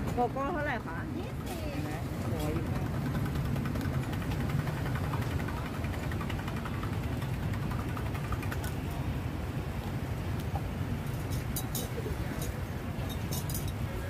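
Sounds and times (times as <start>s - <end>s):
road traffic rumble: 0.0s - 14.0s
spoon clinking on metal cups: 11.2s - 13.9s.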